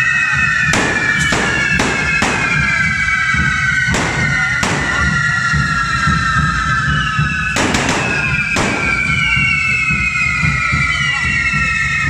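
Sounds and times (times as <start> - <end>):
fireworks whistling: 0.0 - 12.0
firecracker bangs: 0.4 - 6.2, 7.4 - 10.2
dense low rumble: 0.5 - 10.6.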